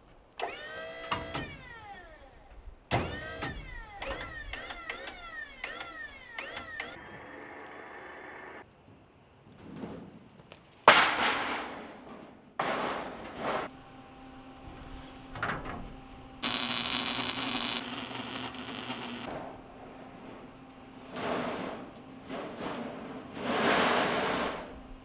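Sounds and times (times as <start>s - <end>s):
welding arc crackling: 16.4s - 19.3s.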